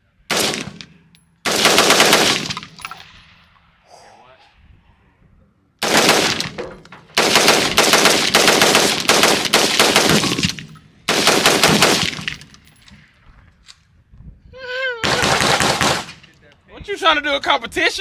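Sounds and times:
rapid-fire gunshots: 0:00.3 - 0:02.7, 0:05.8 - 0:12.4, 0:15.0 - 0:16.2.

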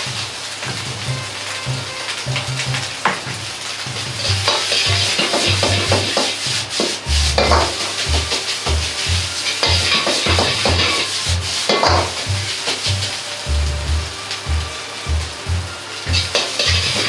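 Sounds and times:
rice sizzling in a wok: 0:00.0 - 0:17.0
ladle clanking against wok: 0:04.2 - 0:12.9
metal ladle scraping a wok: 0:04.3 - 0:13.2, 0:16.0 - 0:17.0.

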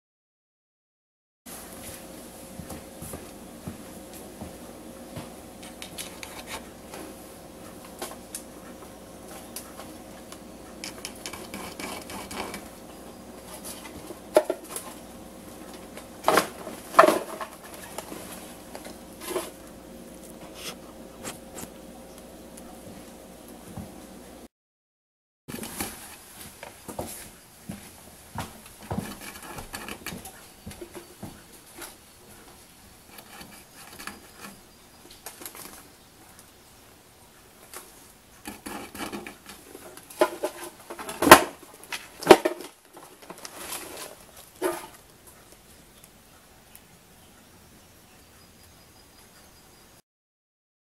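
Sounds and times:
cat scraping and rustling: 0:05.6 - 0:07.2, 0:10.7 - 0:21.8, 0:28.7 - 0:31.1, 0:33.1 - 0:34.6, 0:38.4 - 0:45.1
cans clattering: 0:15.9 - 0:18.2, 0:38.6 - 0:45.0
cans clanking: 0:15.9 - 0:19.8.

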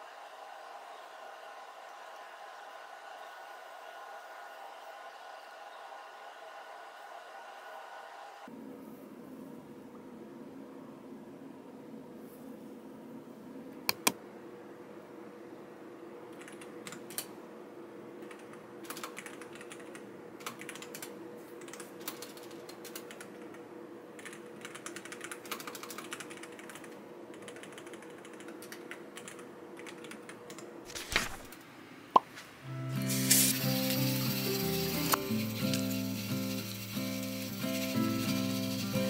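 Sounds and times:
faint steady hum: 0:00.0 - 0:39.0
keyboard typing clicks: 0:13.9 - 0:14.2.

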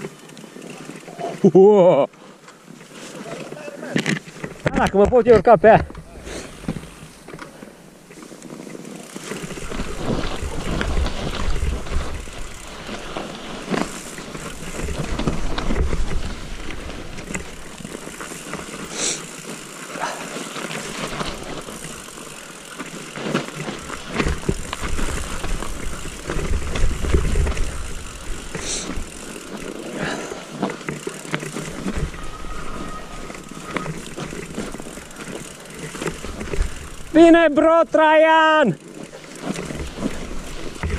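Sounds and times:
bike rattling over bumps: 0:00.0 - 0:40.9
tyres crunching through snow: 0:00.0 - 0:40.9
sharp knocks from bike: 0:03.8 - 0:07.7.

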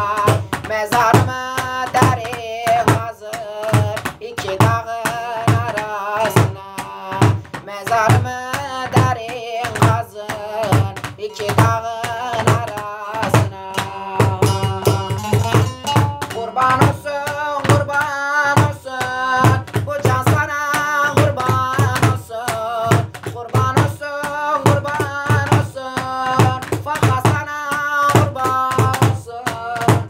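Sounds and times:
drum beaten with a stick: 0:00.0 - 0:30.0
man singing folk song: 0:00.0 - 0:30.0
long-necked lute playing: 0:14.5 - 0:16.8.

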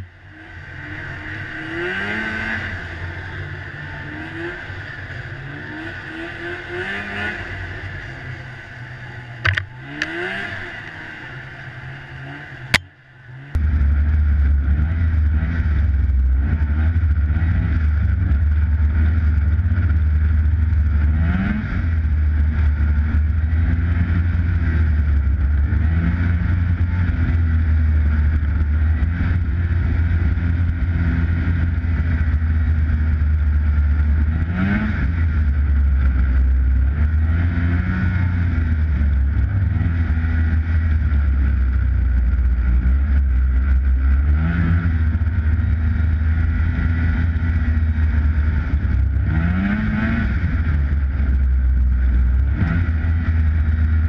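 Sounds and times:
snowmobile engine running: 0:00.0 - 0:54.0.

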